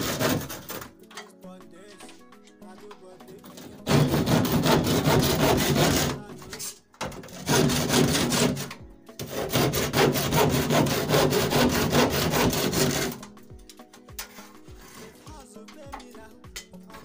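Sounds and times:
hand saw cutting plaster: 0:00.0 - 0:01.0, 0:03.5 - 0:13.3, 0:14.2 - 0:15.3.

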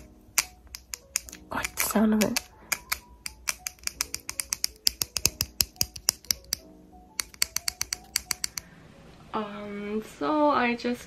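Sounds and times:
fingers tapping on plastic: 0:00.0 - 0:08.6.

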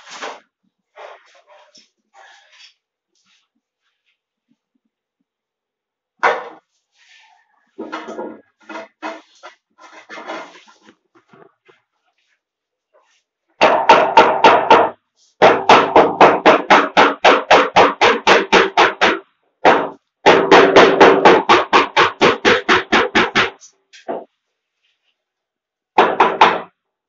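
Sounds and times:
rapid knocking: 0:13.6 - 0:23.6.

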